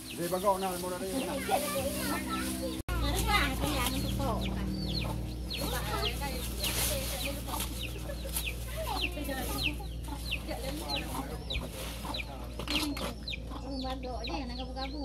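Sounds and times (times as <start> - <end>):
chicks peeping: 0.0 - 15.0
hen clucking: 0.0 - 15.0.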